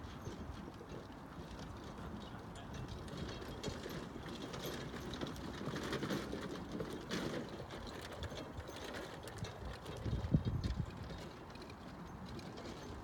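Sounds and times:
carriage wheels rattling and crunching: 2.7s - 13.0s.

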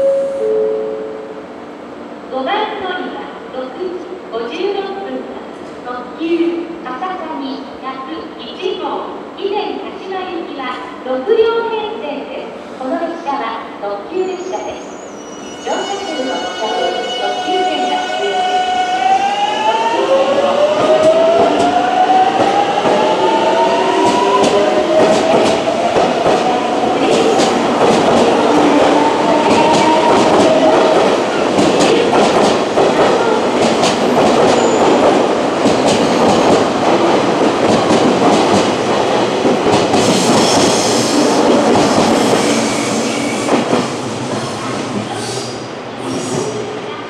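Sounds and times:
train wheels clicking over rail joints: 24.0s - 42.6s.

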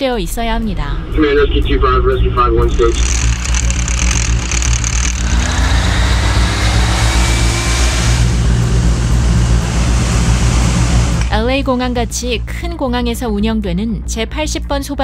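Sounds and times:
fire truck engine running: 1.9s - 12.8s.

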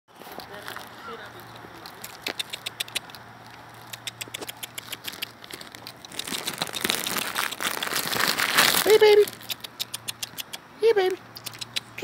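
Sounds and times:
crinkling and clicking handling noise: 0.1s - 9.8s
rushing rustle: 4.8s - 9.4s.

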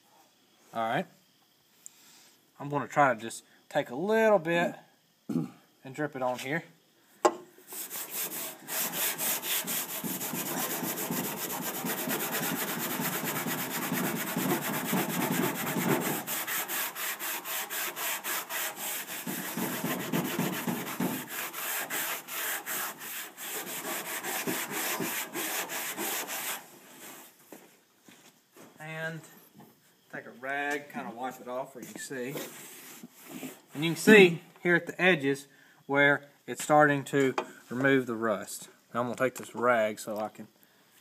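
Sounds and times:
abrasive pad scrubbing metal: 7.8s - 26.7s.

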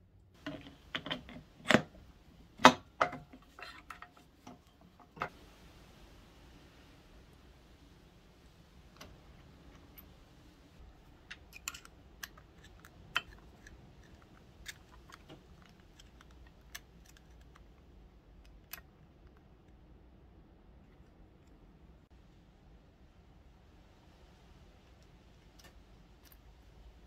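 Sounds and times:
small metal clicks and ticks: 10.8s - 19.8s, 24.8s - 26.9s.

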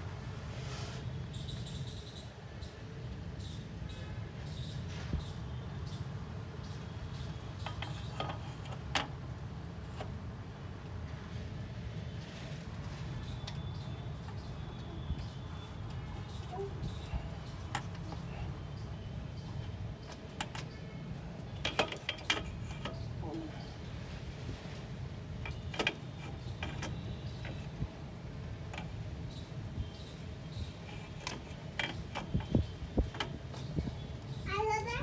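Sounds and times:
light metallic clicks and knocks: 7.6s - 9.2s, 17.4s - 23.2s, 25.4s - 27.8s, 28.6s - 34.4s.

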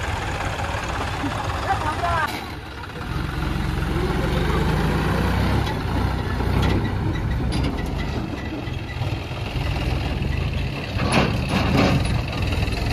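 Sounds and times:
tractor diesel engine running: 0.0s - 12.9s
trailer knocks and clatter: 1.6s - 3.0s, 5.2s - 12.9s.

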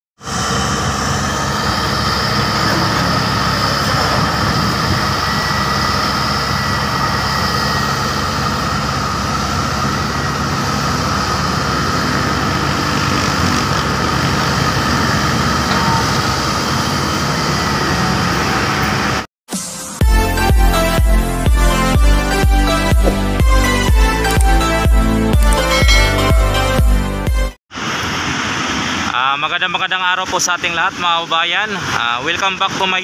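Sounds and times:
excavator diesel engines running: 0.2s - 19.3s, 21.5s - 27.2s.

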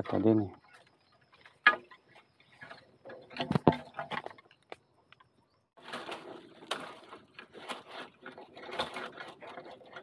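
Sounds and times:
dry brush crackling and rustling: 5.8s - 10.0s.

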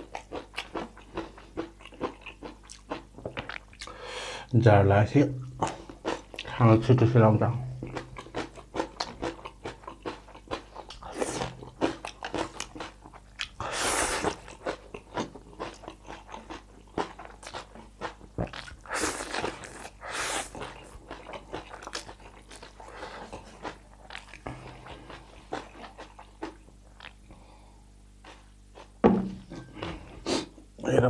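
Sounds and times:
wet chewing and mouth smacks: 0.0s - 4.0s, 7.8s - 27.4s
slurping noodles: 18.5s - 20.9s.

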